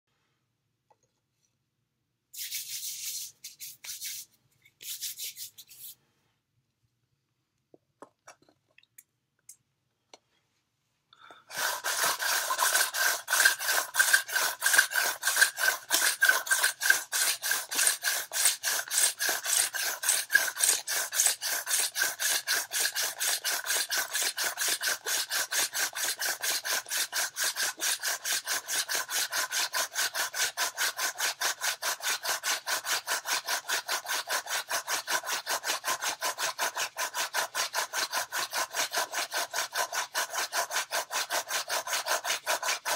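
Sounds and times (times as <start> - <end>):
rhythmic rubbing of palms: 2.4 - 6.1, 11.5 - 28.6
wooden spindle grinding and squealing: 11.5 - 26.6.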